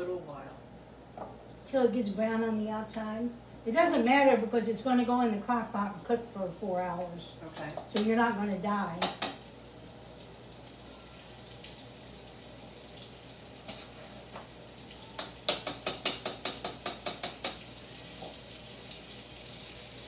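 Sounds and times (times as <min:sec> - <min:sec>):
meat sizzling in oil: 0:07.4 - 0:20.0.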